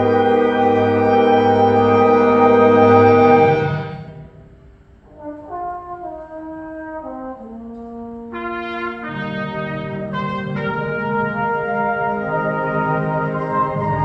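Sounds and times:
concert band playing: 0:00.0 - 0:04.6.

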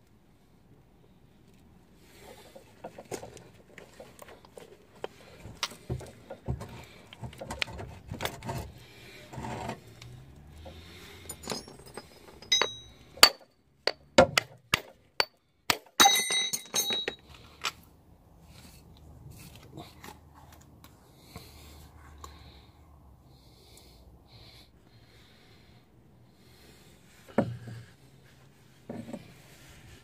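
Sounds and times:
metallic clinks and knocks: 0:10.6 - 0:15.4, 0:16.0 - 0:17.3.

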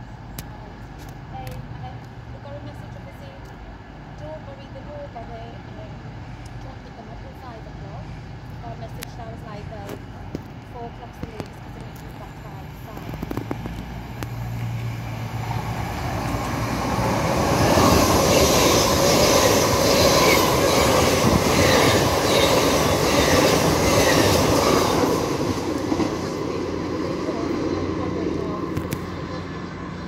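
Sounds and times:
passenger train passing: 0:00.0 - 0:30.0
train wheel clatter: 0:09.8 - 0:14.8, 0:16.1 - 0:29.2.

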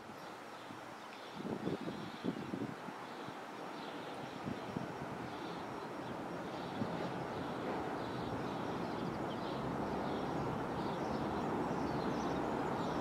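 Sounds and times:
train diesel engine and wheel rumble: 0:05.7 - 0:13.0.

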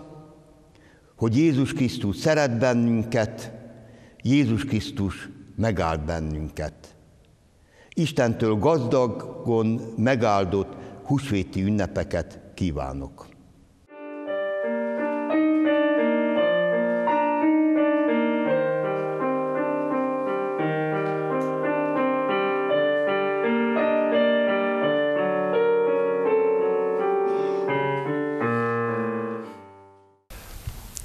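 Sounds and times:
piano-like keyboard music: 0:13.9 - 0:30.2.

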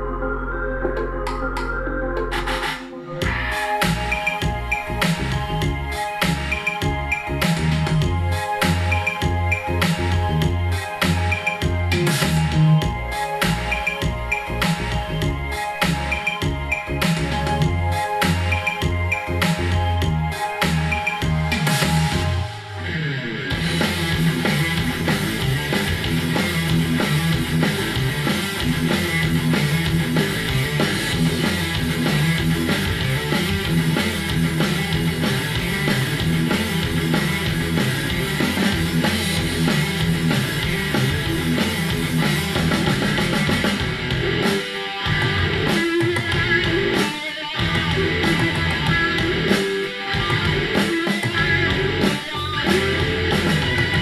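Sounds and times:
repeating guitar riff: 0:00.0 - 0:10.7, 0:20.9 - 0:54.0
rock music through speakers: 0:00.0 - 0:54.0
drum kit: 0:00.8 - 0:54.0.

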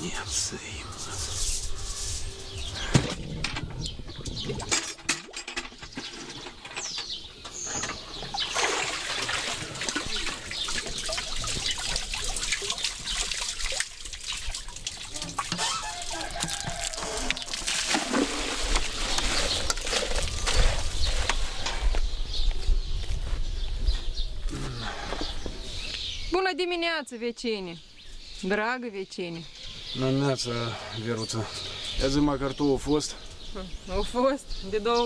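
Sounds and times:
water splashing from a bucket: 0:08.3 - 0:21.3.

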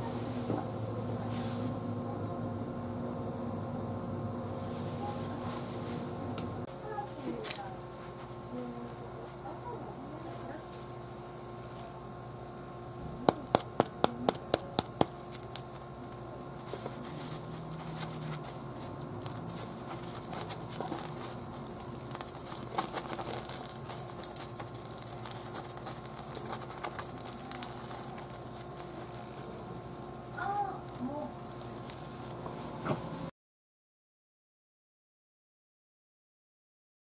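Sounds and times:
tapping on bread roll: 0:13.2 - 0:15.7
bread crust crackling as torn: 0:14.6 - 0:16.2, 0:19.0 - 0:29.1.

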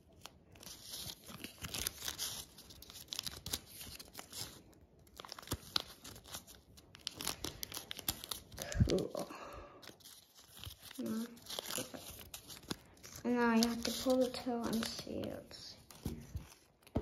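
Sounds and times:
paper crinkling and rustling: 0:00.0 - 0:17.0.

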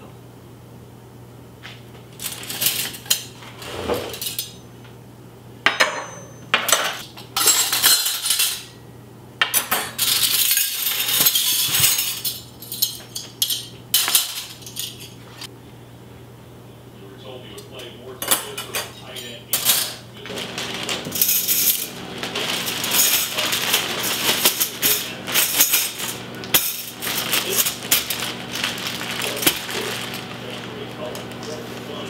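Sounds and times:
metal cutlery clinking: 0:02.2 - 0:03.4, 0:04.0 - 0:04.6, 0:05.8 - 0:08.7, 0:09.6 - 0:15.2, 0:18.2 - 0:30.4.

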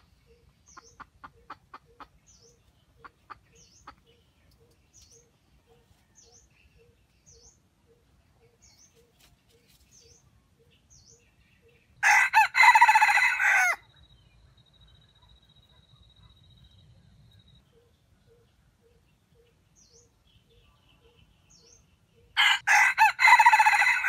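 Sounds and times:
rooster crowing: 0:12.0 - 0:13.8, 0:22.4 - 0:24.0
faint high chirps: 0:13.8 - 0:22.4.

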